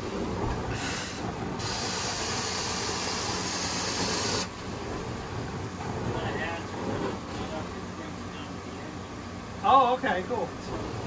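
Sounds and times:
extraction machine hum: 0:00.0 - 0:11.0
extraction wand hissing: 0:00.7 - 0:04.9.

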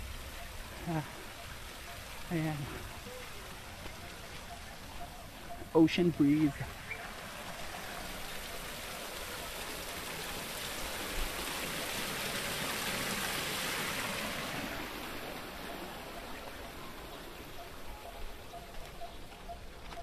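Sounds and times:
waterfall splashing into pond: 0:05.8 - 0:17.4.

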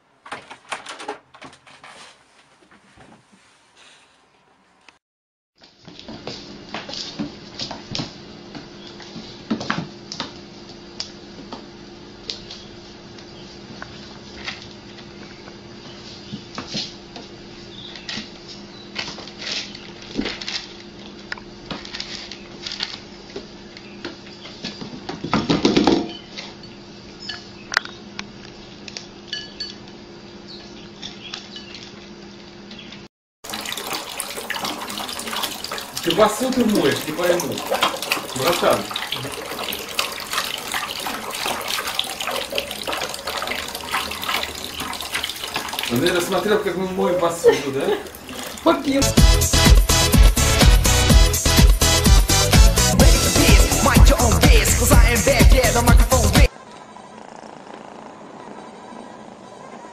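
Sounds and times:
food bowls clinking on tiled floor: 0:29.3 - 0:29.8
tap running into a sink: 0:33.5 - 0:46.5.

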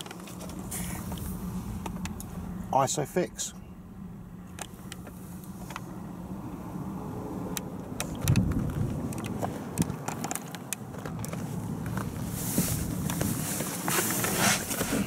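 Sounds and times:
low steady hum: 0:00.0 - 0:07.8
camera handling clicks and rustles: 0:07.9 - 0:12.2.

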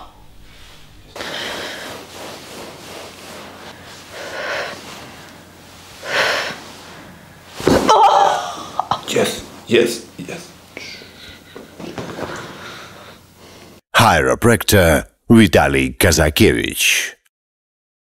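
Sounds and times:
person exhaling breathily: 0:00.4 - 0:02.1, 0:04.1 - 0:04.9.

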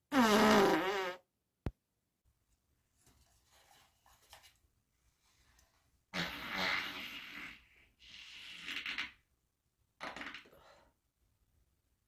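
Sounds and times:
long farts: 0:00.1 - 0:01.3, 0:06.1 - 0:09.3.

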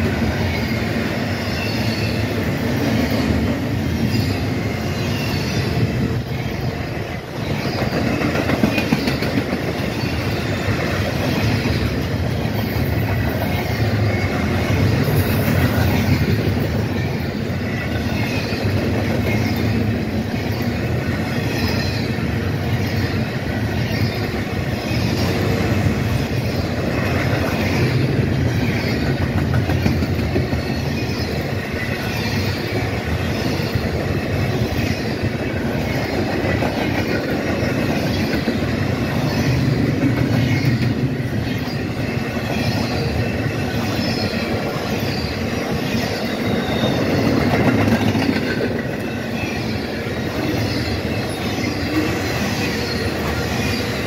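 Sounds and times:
freight cars rumbling on rails: 0:00.0 - 0:54.0
wheels clattering over rail joints: 0:06.7 - 0:20.7, 0:26.3 - 0:49.8.

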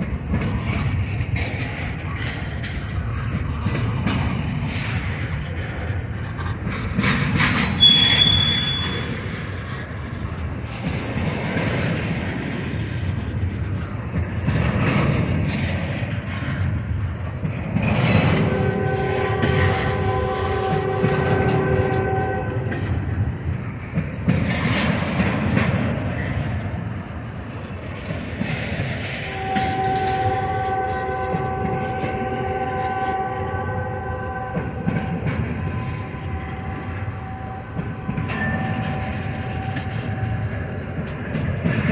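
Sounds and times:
train wheels rumbling on rail: 0:00.0 - 0:41.9
high-pitched wheel squeal: 0:07.8 - 0:09.5
locomotive horn chord: 0:18.6 - 0:22.7.

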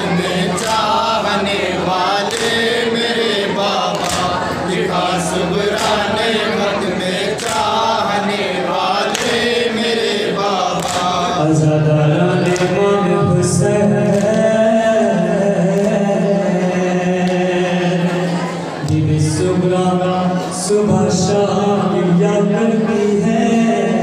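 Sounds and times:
men chanting in unison: 0:00.0 - 0:24.0.

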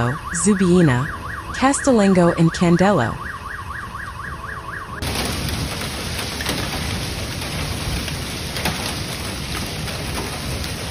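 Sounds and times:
siren warbling: 0:00.0 - 0:05.1
heavy rain and hail: 0:05.0 - 0:10.9.

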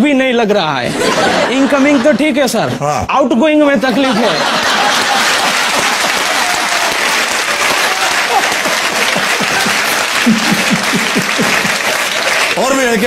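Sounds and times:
audience laughter: 0:00.9 - 0:02.8, 0:03.8 - 0:06.8, 0:07.6 - 0:12.5
studio audience applauding: 0:04.0 - 0:13.0.

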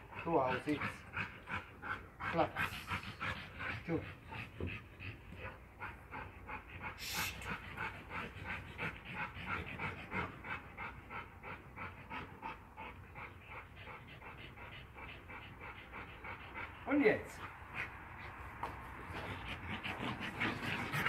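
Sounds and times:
dog panting rapidly: 0:00.0 - 0:21.0.

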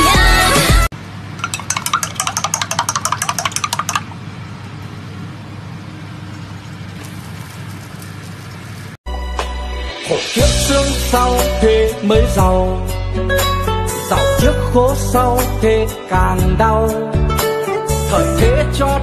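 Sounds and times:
pop music: 0:00.0 - 0:00.9, 0:09.1 - 0:19.0
griddle clicks and crackles: 0:06.3 - 0:09.0.

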